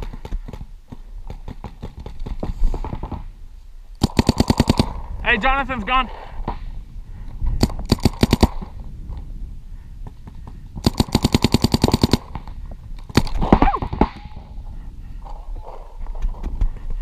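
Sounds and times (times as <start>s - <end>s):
paintball marker rapid firing: 4.0s - 5.0s, 7.6s - 8.7s, 10.8s - 12.4s, 13.1s - 14.2s.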